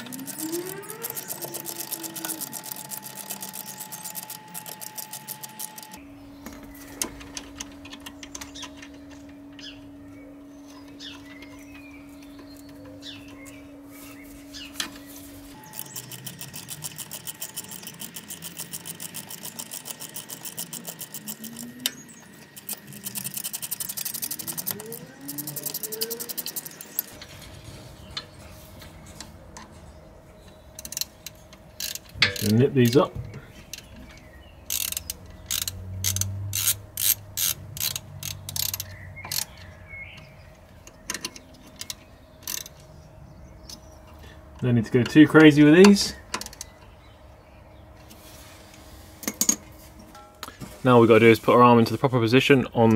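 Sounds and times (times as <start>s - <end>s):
ratchet wrench clicking: 0.0s - 6.0s, 15.6s - 27.2s, 30.8s - 33.0s, 34.7s - 39.6s, 41.1s - 42.8s
steady hum: 0.0s - 52.9s.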